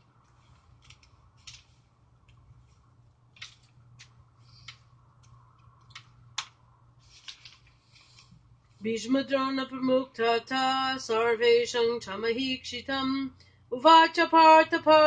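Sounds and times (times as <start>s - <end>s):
low steady hum: 0.0s - 15.0s
small clicks and taps: 0.8s - 2.4s, 3.3s - 6.6s.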